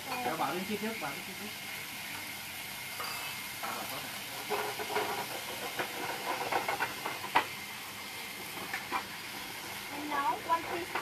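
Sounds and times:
food sizzling in frying pan: 0:00.0 - 0:11.0
utensil scraping a pan: 0:04.4 - 0:07.4.

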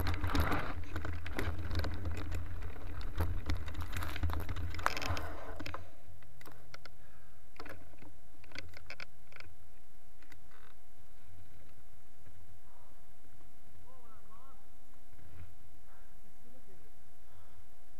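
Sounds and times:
bike tyres rumbling on dirt: 0:00.0 - 0:06.7
bike clicking and rattling: 0:00.0 - 0:09.6, 0:10.2 - 0:12.5.

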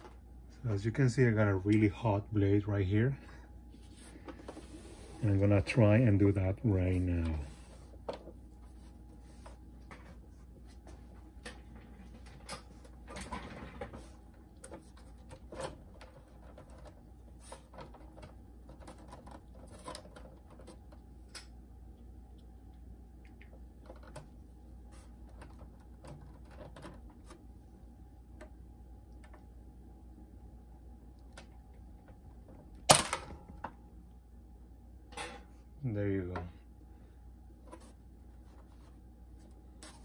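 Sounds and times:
low steady hum: 0:00.0 - 0:40.0.

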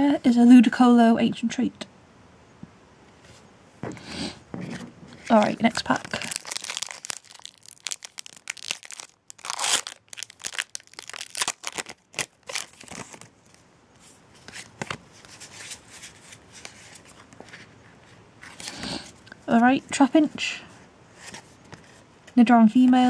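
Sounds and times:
cards rustling and clicking: 0:04.6 - 0:13.6
foil wrapper tearing and crinkling: 0:05.3 - 0:13.3.

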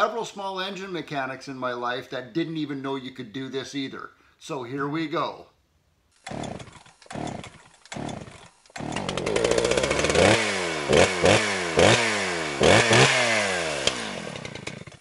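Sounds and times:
chainsaw engine revving: 0:06.2 - 0:15.0
chainsaw starter cord tug: 0:06.2 - 0:15.0.

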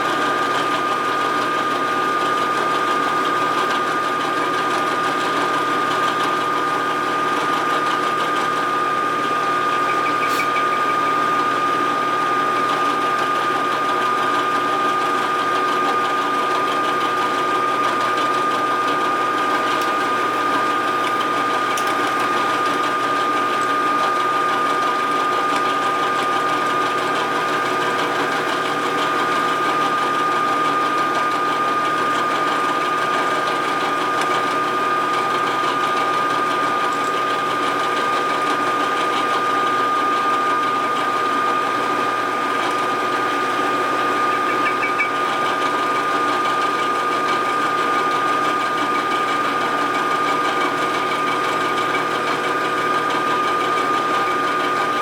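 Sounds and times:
milling machine whining: 0:00.0 - 0:55.0
drill bit cutting aluminum: 0:38.8 - 0:55.0.

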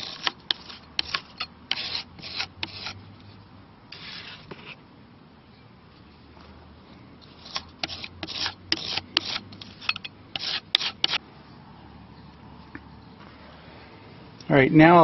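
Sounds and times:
putty knife scraping wood: 0:00.0 - 0:03.0, 0:03.9 - 0:04.8, 0:07.3 - 0:11.2.

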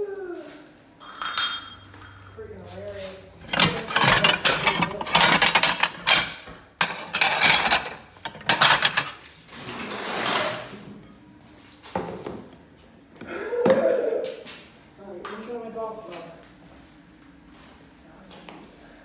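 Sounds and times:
plates and bowls clattering: 0:01.0 - 0:02.3, 0:03.4 - 0:09.2.

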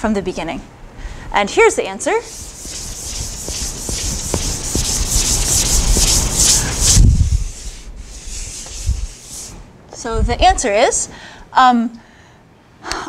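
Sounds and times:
board eraser scrubbing: 0:02.2 - 0:09.6.

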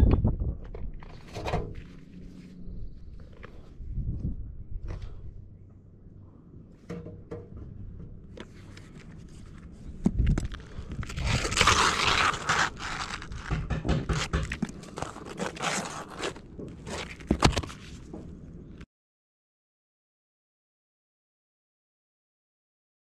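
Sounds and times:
roof shingles scraping and crunching: 0:08.4 - 0:18.1
sharp clicks and knocks: 0:13.2 - 0:15.2.

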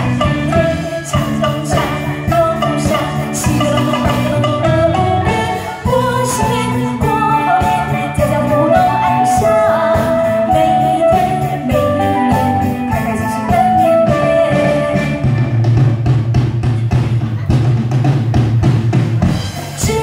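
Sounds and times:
live band playing: 0:00.0 - 0:20.0
woman singing into microphone: 0:00.2 - 0:15.5, 0:19.8 - 0:20.0.

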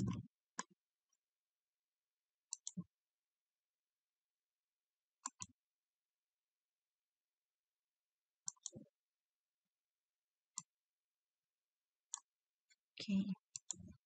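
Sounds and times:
computer mouse clicks: 0:02.5 - 0:02.8, 0:05.2 - 0:05.6, 0:08.4 - 0:08.8, 0:10.6 - 0:10.8, 0:12.1 - 0:12.3, 0:13.5 - 0:14.0.

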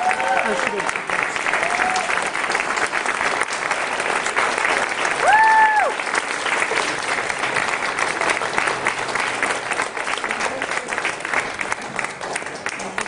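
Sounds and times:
high cheer: 0:00.0 - 0:02.6, 0:04.9 - 0:06.4
crowd applause: 0:00.0 - 0:13.0.

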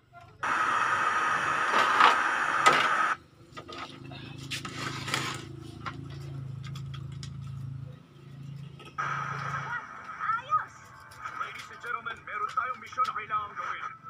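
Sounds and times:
television static hiss: 0:00.0 - 0:03.2, 0:09.0 - 0:14.0.

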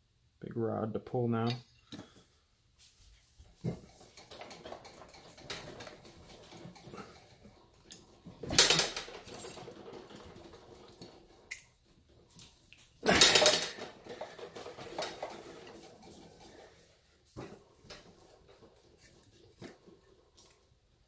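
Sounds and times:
metal clanking and rattling: 0:03.6 - 0:20.3.

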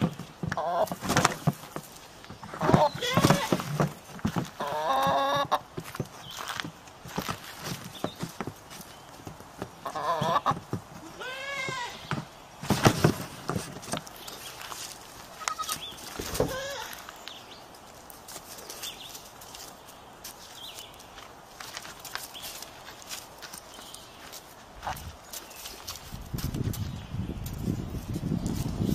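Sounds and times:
scuffling thumps: 0:00.0 - 0:17.1
goat bleating: 0:02.7 - 0:03.6, 0:11.0 - 0:12.1, 0:15.3 - 0:15.8, 0:16.4 - 0:17.0.

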